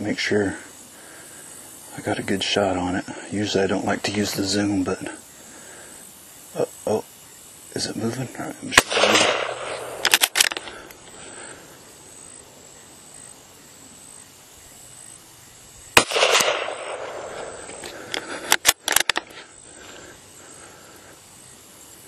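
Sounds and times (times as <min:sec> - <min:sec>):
rifle shot: 0:08.7 - 0:10.8, 0:16.0 - 0:17.8
rifle bolt clicks: 0:08.8 - 0:10.7, 0:18.1 - 0:19.2.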